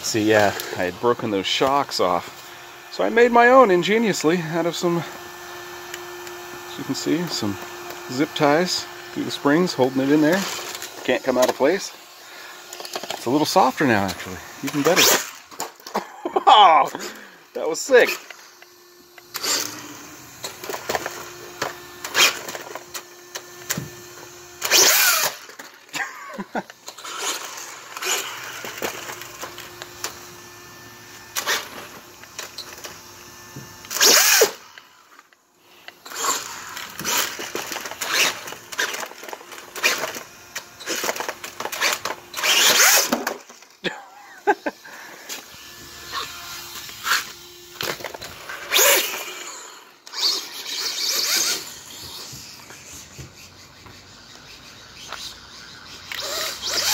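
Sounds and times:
electric motor whine revving: 0.0s - 56.9s.

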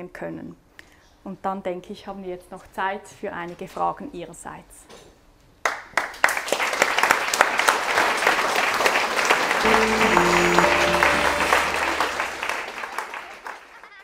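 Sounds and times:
audience applause: 6.3s - 14.0s
short musical jingle: 9.6s - 12.8s.

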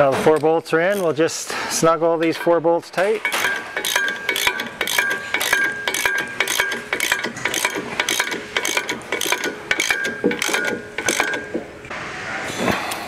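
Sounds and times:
ratchet wrench clicking: 3.2s - 11.6s.

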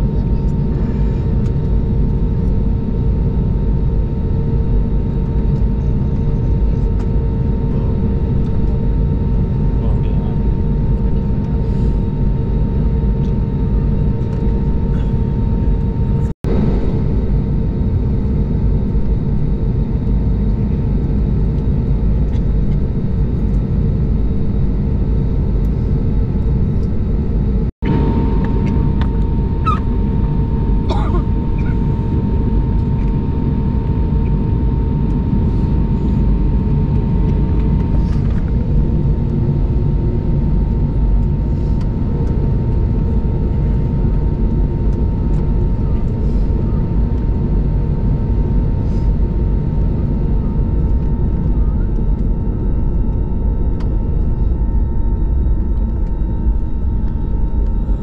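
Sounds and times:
aircraft cabin rumble: 0.0s - 58.0s.

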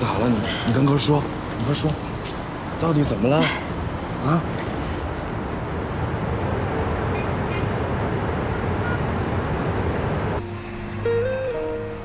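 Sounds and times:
road traffic rumble: 0.0s - 12.0s
soft music: 10.4s - 12.0s.

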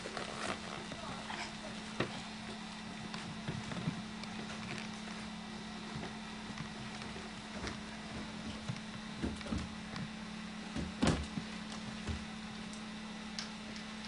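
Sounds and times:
feet thumping on trampoline: 0.0s - 12.4s
low hum: 0.0s - 14.0s.

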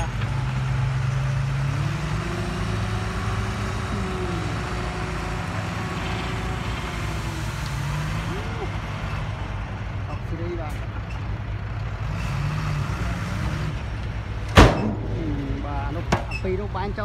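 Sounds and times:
truck engine running: 0.0s - 17.0s.

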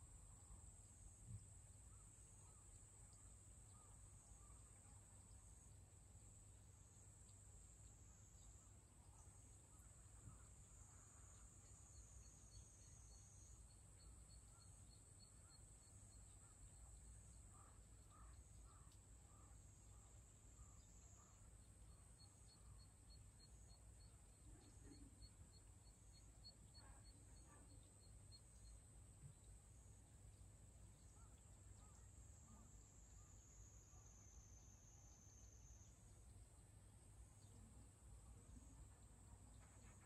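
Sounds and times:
faint frog calls: 1.8s - 5.1s, 7.3s - 30.0s, 30.6s - 36.3s.

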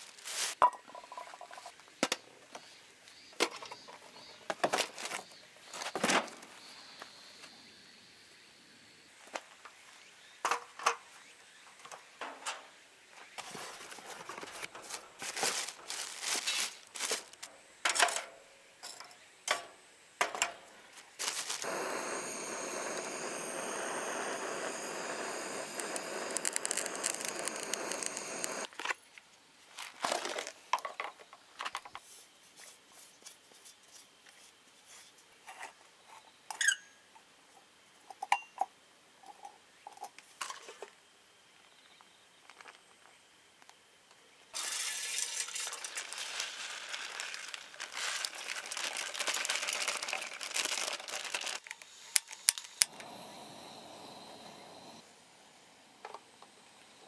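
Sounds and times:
gas torch hissing: 21.2s - 28.7s, 51.9s - 57.0s.

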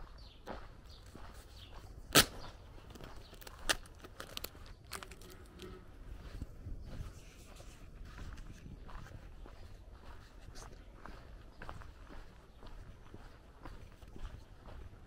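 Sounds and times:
footsteps: 0.0s - 14.8s
sharp loud click: 2.1s - 2.5s.

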